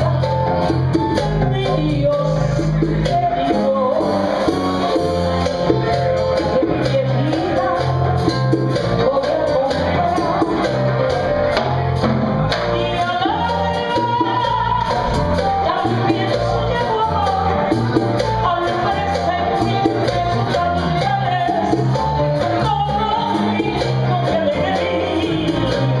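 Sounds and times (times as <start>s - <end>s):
woman singing into microphone: 0.0s - 4.5s, 6.4s - 11.0s, 12.6s - 26.0s
electric bass: 0.0s - 26.0s
percussion: 0.0s - 26.0s.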